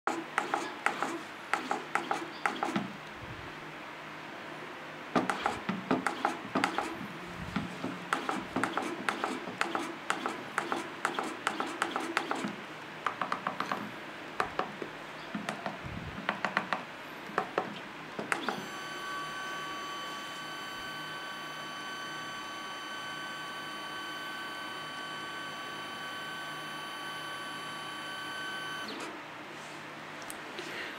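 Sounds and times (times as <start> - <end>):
stepper motor ticking clicks: 17.4 - 18.6
stepper motor high whine: 18.3 - 29.0.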